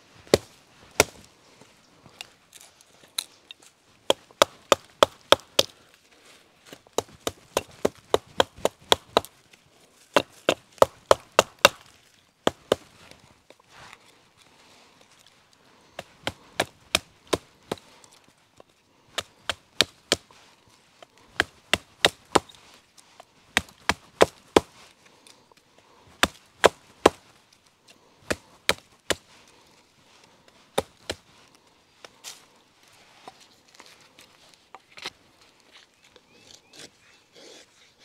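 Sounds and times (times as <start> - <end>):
hatchet splitting a stick: 0.2 - 1.3, 4.0 - 5.8, 6.7 - 9.3, 10.1 - 13.0, 16.0 - 18.0, 19.1 - 20.4, 21.0 - 22.6, 23.2 - 24.8, 26.1 - 27.3, 28.2 - 29.3, 30.7 - 31.3.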